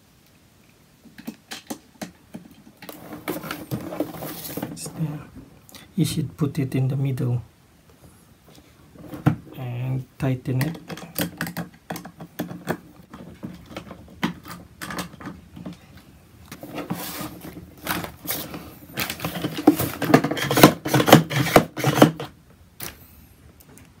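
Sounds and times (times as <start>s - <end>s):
plastic hose reel rattling: 1.2s - 5.2s, 10.5s - 15.8s, 16.5s - 22.3s
screwdriver working in plastic: 19.0s - 22.3s.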